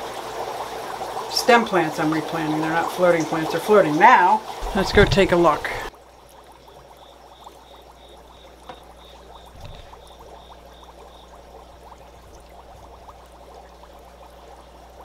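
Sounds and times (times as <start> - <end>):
aquarium water trickling and bubbling: 0.0 - 15.0
low hum of tank equipment: 4.5 - 15.0.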